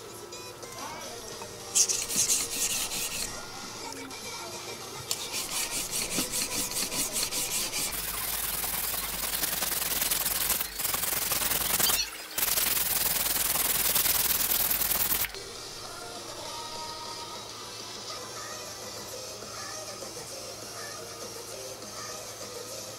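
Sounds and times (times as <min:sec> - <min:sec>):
knife scraping on whetstone: 0:01.7 - 0:03.7, 0:05.1 - 0:08.4.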